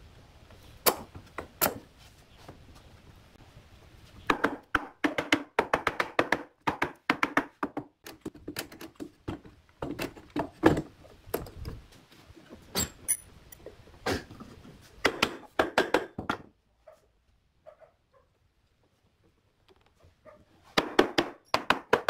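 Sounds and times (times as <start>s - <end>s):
wooden mallet knocking boards: 4.3s - 8.0s, 15.0s - 16.5s.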